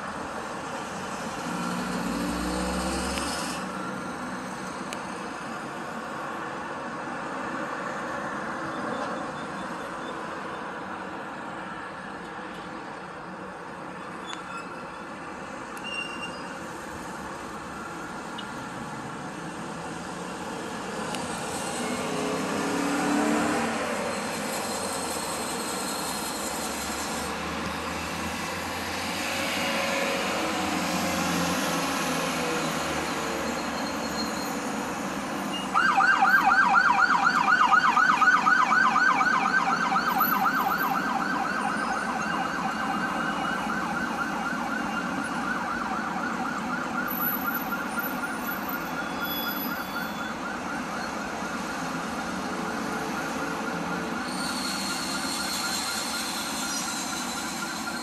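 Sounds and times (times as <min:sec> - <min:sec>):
road traffic: 0:00.0 - 0:58.0
emergency siren yelping: 0:35.5 - 0:58.0.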